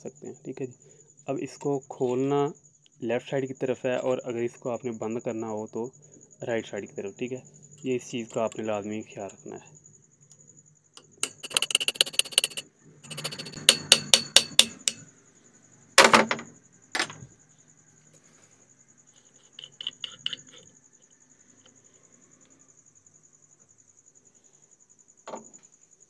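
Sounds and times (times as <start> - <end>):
metal tapping and clicking: 8.2 - 9.4, 11.0 - 15.0, 19.4 - 20.7
sharp metal knocks: 11.0 - 15.1, 16.0 - 17.3, 19.6 - 20.6.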